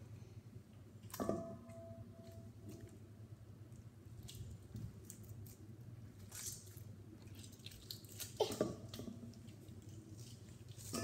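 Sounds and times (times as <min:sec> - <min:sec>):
slime squishing: 0:03.7 - 0:11.0.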